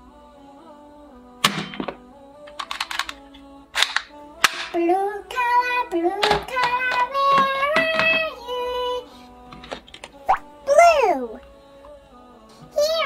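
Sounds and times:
background music with melody: 0:00.0 - 0:13.0
plastic toy guns clacking: 0:01.5 - 0:03.2, 0:03.8 - 0:04.8, 0:06.2 - 0:08.3.

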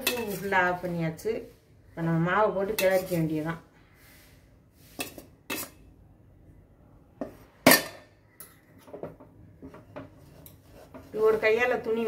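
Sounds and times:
spoon knocking and scraping steel pot: 0:00.0 - 0:00.8, 0:02.6 - 0:03.4, 0:04.9 - 0:05.8, 0:07.2 - 0:12.0.

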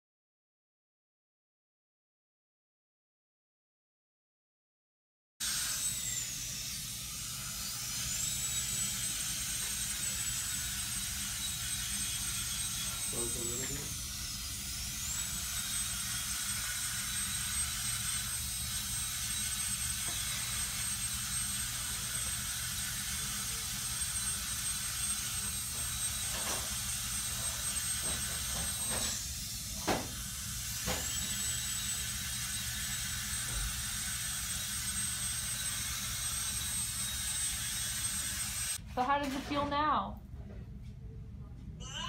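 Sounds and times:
dental drill whine: 0:05.4 - 0:38.8.

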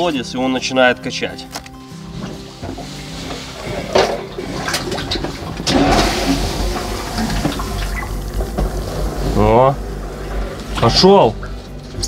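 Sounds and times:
water sloshing and splashing: 0:02.2 - 0:12.0
pump humming: 0:04.2 - 0:12.0
water rushing: 0:04.3 - 0:11.7.

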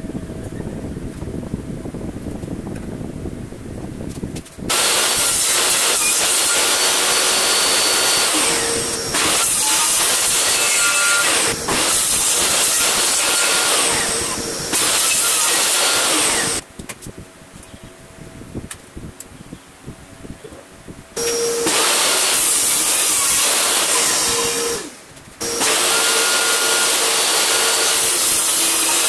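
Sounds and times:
table saw cutting wood: 0:04.7 - 0:16.6, 0:21.2 - 0:29.0.

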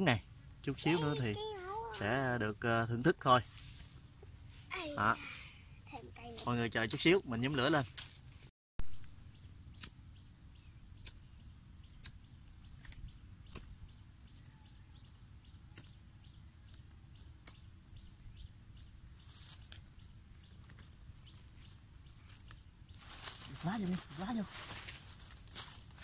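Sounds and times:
small bird chirping: 0:08.8 - 0:25.2
sharp clicks: 0:09.0 - 0:10.0, 0:11.0 - 0:11.2, 0:12.0 - 0:13.8, 0:17.4 - 0:18.3.

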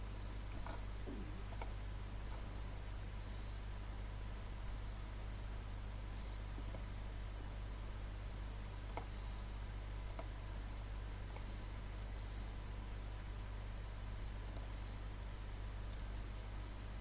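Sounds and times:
low hum and hiss: 0:00.0 - 0:17.0
faint sharp clicks: 0:01.5 - 0:01.7, 0:06.6 - 0:06.9, 0:08.9 - 0:09.1, 0:10.1 - 0:10.3, 0:14.4 - 0:14.7.

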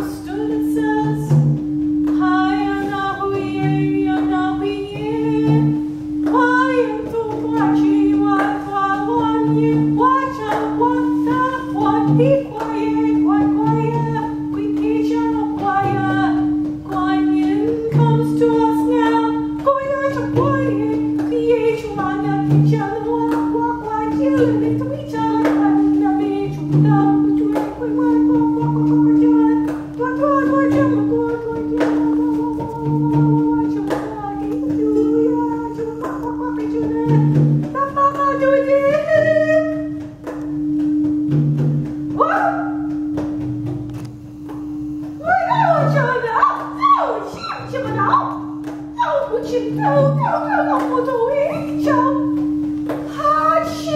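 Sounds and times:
singing bowl ringing drone: 0:00.0 - 0:31.6, 0:40.5 - 0:43.5, 0:45.2 - 0:53.9
soft low drum beat: 0:00.0 - 0:53.9.

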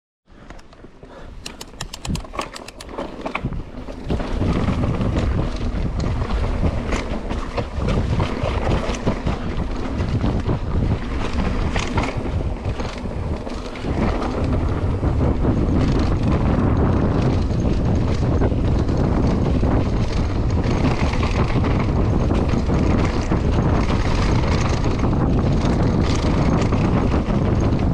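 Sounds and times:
wind buffeting microphone: 0:01.1 - 0:27.9
quick ticks: 0:01.4 - 0:03.0
bike knocks and rattles: 0:01.4 - 0:27.9.

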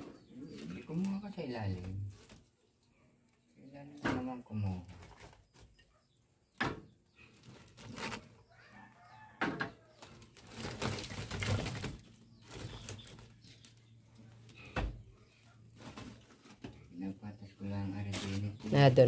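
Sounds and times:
wood pieces scraping: 0:07.2 - 0:08.4.

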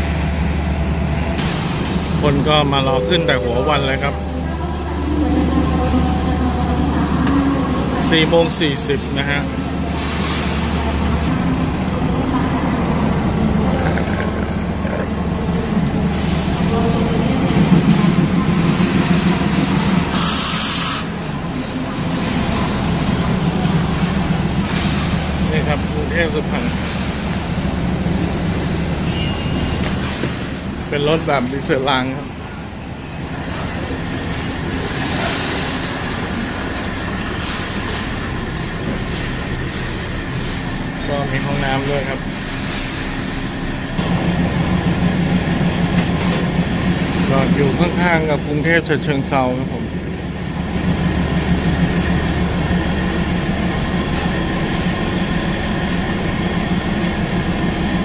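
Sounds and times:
diesel railcar engine idling: 0:00.0 - 0:58.0
air release hiss: 0:20.1 - 0:21.1.

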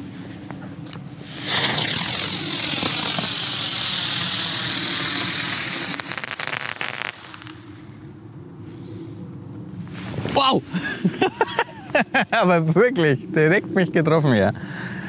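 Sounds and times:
fireworks crackling: 0:01.2 - 0:07.7
fireworks rushing hiss: 0:01.2 - 0:07.7.

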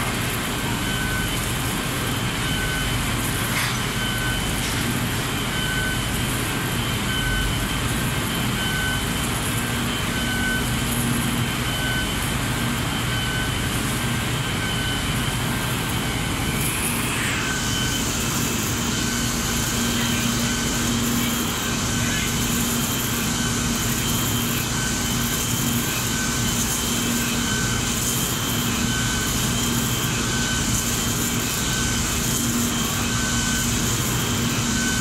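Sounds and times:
fire engine running under load: 0:00.0 - 0:35.0
short warning beeps: 0:11.6 - 0:12.2, 0:14.4 - 0:35.0.

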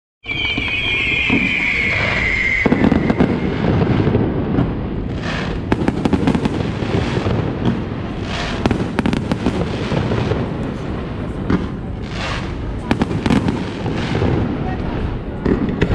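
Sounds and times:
firework falling whistle: 0:00.2 - 0:04.6
firework bangs and crackling pops: 0:00.2 - 0:15.9.

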